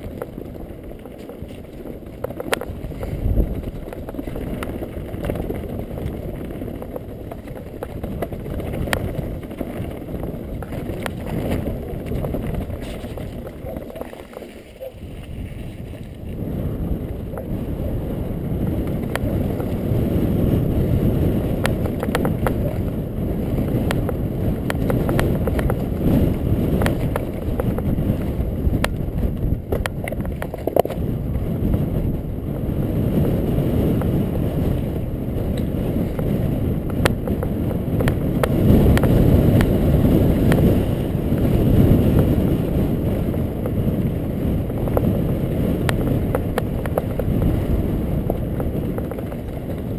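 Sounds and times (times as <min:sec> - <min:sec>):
stones clicking and knocking: 0:00.0 - 0:15.3, 0:21.6 - 0:22.9
bike rattling: 0:00.0 - 0:49.9
tyres rumbling over gravel: 0:00.0 - 0:49.9
wind buffeting microphone: 0:00.0 - 0:49.9.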